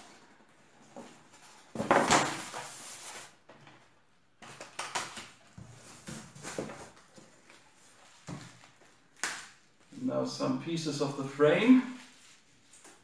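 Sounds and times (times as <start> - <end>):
cardboard rustling: 5.2 - 9.1.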